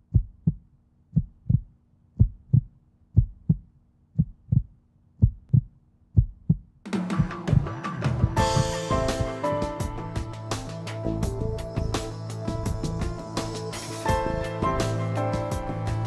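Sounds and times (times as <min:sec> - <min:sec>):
heartbeat thumps: 0:00.0 - 0:10.3
music: 0:06.9 - 0:16.0.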